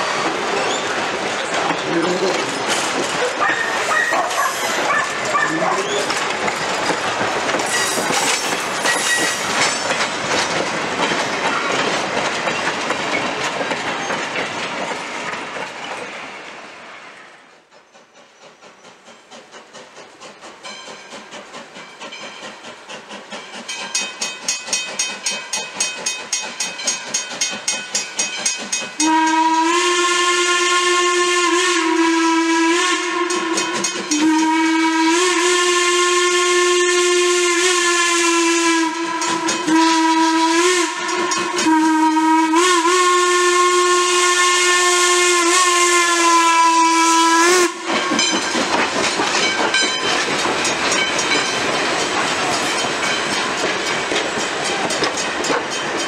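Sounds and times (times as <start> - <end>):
train wheel clatter: 0.0 - 56.0
steam whistle blasts: 29.0 - 48.2.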